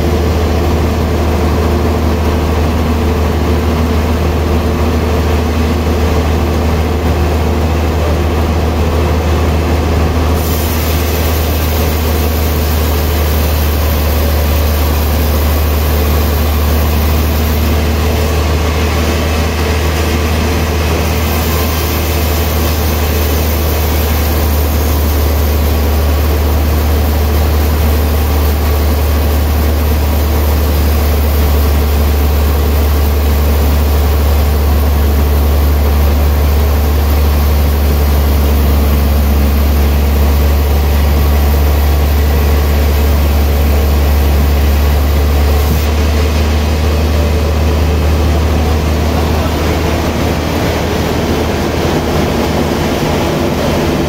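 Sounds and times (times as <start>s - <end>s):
sawmill machine running: 0.0s - 54.0s
high hissing sound: 10.4s - 18.1s.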